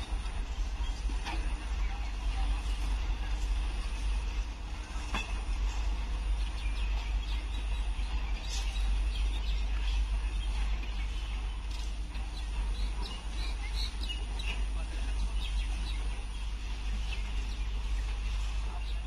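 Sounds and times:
freight train rumbling: 0.0s - 19.0s.

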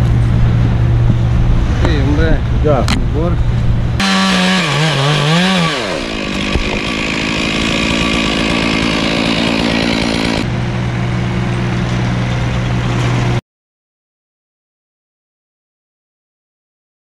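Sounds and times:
chainsaw engine: 4.0s - 10.6s
skid steer engine running: 4.0s - 13.4s.

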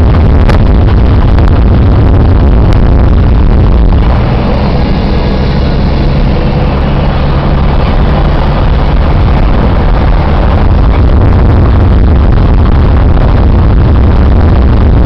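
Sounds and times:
car engine hum: 0.0s - 15.0s
gravel road noise: 0.0s - 15.0s.

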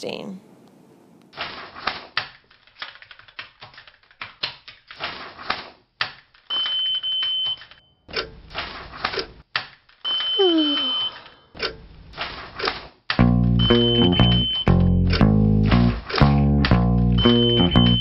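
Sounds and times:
laptop keyboard typing: 1.8s - 7.6s
card reader beep: 6.5s - 7.9s, 10.1s - 11.4s, 13.6s - 15.0s, 17.2s - 18.0s.

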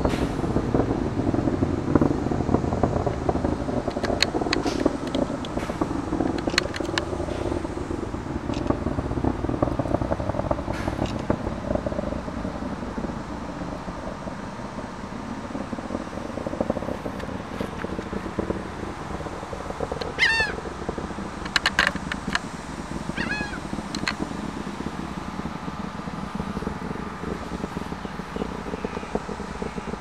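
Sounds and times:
distant rocket engine rumble: 0.0s - 30.0s
sharp cracks: 0.0s - 30.0s.

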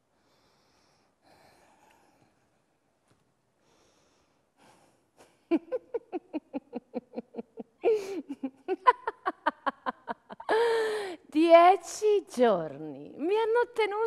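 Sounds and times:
woman laughing: 5.2s - 11.2s.

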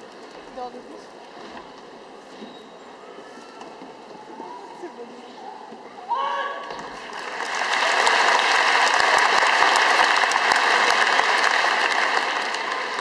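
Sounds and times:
crowd applauding: 7.0s - 13.0s.

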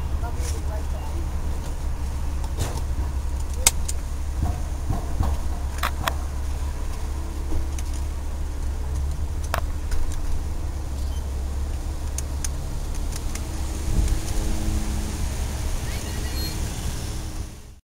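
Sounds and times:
car engine rumble: 0.0s - 17.8s.

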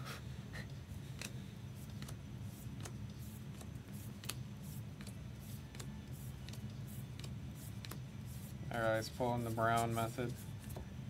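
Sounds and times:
steady low hum: 0.0s - 11.0s
cards flicking and clicking: 1.1s - 8.1s.

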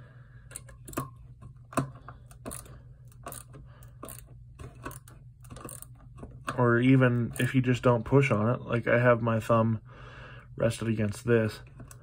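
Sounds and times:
ratcheting driver clicking: 1.7s - 6.6s.

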